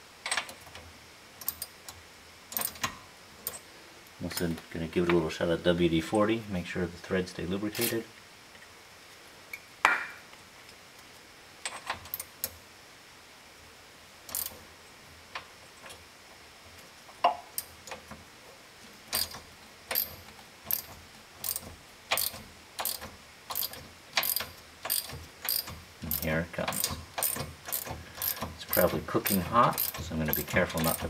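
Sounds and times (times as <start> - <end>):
socket ratchet clicking: 2.5 - 2.9, 14.3 - 14.6, 19.1 - 31.0.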